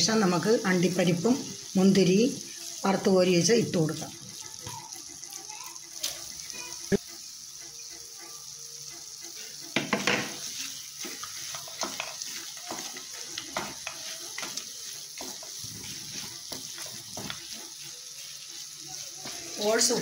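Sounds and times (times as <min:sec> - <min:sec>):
faint sizzle: 0:00.0 - 0:20.0
spatula scraping a pan: 0:08.7 - 0:20.0.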